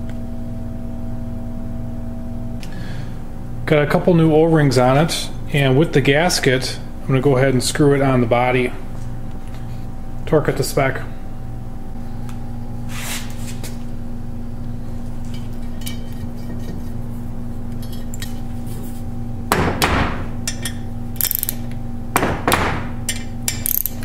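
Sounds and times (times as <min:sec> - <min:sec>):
steady low hum: 0:00.0 - 0:24.0
ratchet clicks: 0:21.2 - 0:21.7, 0:23.1 - 0:24.0.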